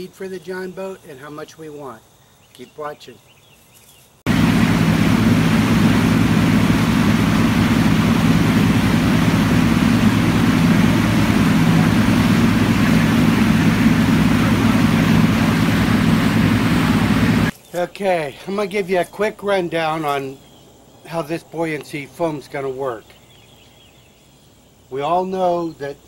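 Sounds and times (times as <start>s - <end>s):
wind: 0.0s - 26.0s
outboard motor running: 4.3s - 17.5s
water rushing: 4.3s - 17.5s.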